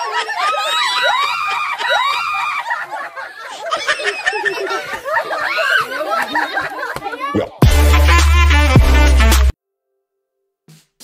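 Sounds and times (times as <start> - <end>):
women shrieking and laughing: 0.0 - 7.4.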